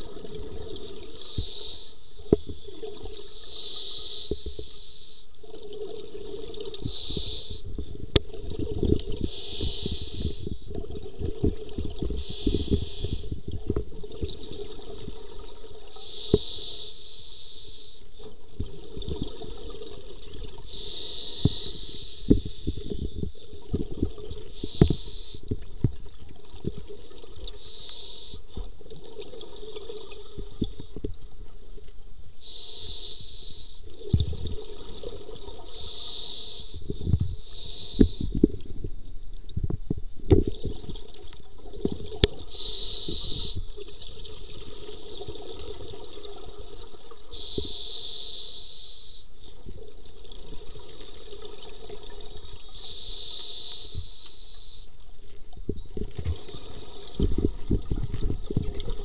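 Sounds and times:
regulator inhale hiss: 0:01.2 - 0:02.6, 0:03.2 - 0:05.3, 0:06.8 - 0:07.8, 0:09.2 - 0:10.6, 0:12.2 - 0:13.4, 0:15.9 - 0:18.1, 0:20.6 - 0:23.2, 0:24.5 - 0:25.6, 0:27.5 - 0:28.6, 0:32.4 - 0:33.9, 0:35.6 - 0:38.5, 0:42.4 - 0:43.8, 0:47.3 - 0:49.5, 0:52.7 - 0:55.0
exhaled bubbles rumbling: 0:05.4 - 0:16.0, 0:18.4 - 0:27.8, 0:33.8 - 0:47.5, 0:55.2 - 0:59.0.

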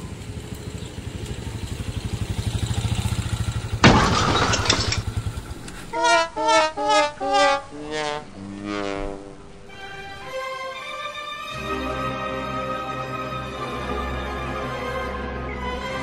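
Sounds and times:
motor tricycle engine running: 0:00.0 - 0:04.2, 0:04.8 - 0:05.9
bowed string music: 0:05.4 - 0:16.0.

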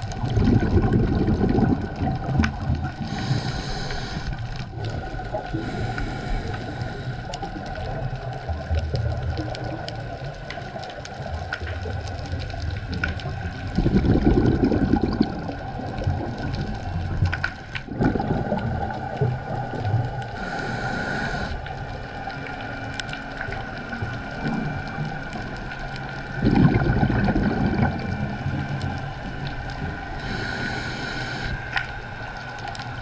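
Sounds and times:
exhaled bubbles bursting: 0:00.0 - 0:03.4, 0:07.5 - 0:20.7, 0:23.4 - 0:30.4
diver breathing through regulator: 0:03.0 - 0:04.6, 0:05.5 - 0:07.6, 0:20.3 - 0:21.9, 0:30.2 - 0:31.9.

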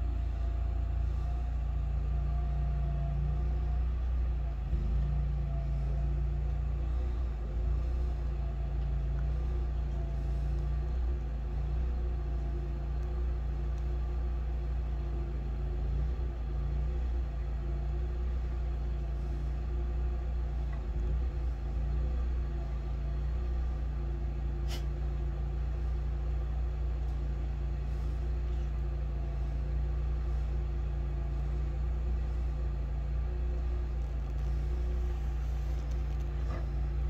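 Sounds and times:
engine humming steadily: 0:00.0 - 0:37.0.

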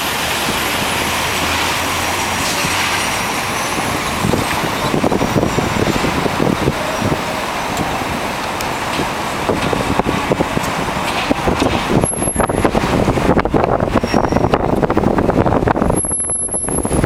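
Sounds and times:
cars passing: 0:00.0 - 0:17.0.

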